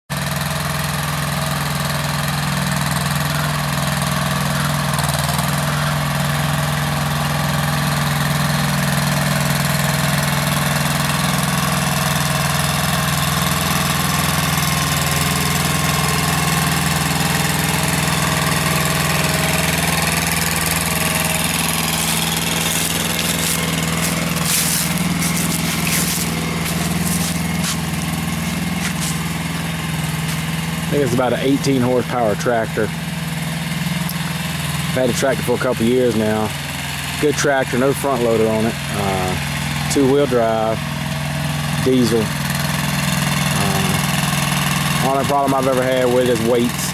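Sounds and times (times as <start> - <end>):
implement dragging through dirt: 0.1 - 32.2
tractor diesel engine running: 0.1 - 46.9.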